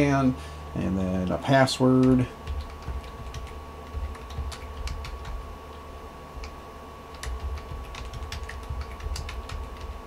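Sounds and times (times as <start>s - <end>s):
steady low hum: 0.0s - 10.0s
keyboard keys clicking: 2.0s - 5.4s, 6.4s - 10.0s.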